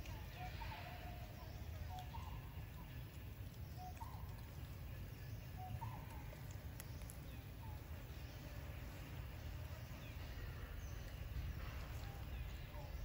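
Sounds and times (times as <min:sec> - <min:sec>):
faint sharp clicks: 0:01.8 - 0:05.0, 0:05.7 - 0:07.8
steady low rumble: 0:06.1 - 0:13.0.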